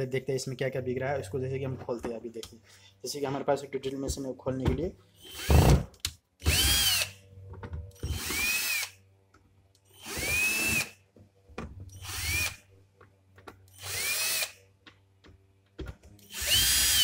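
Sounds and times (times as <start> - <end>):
electric drill motor whine: 5.2 - 5.8, 6.4 - 7.2, 8.0 - 9.0, 9.9 - 11.0, 11.9 - 12.6, 13.7 - 14.6, 16.2 - 17.0.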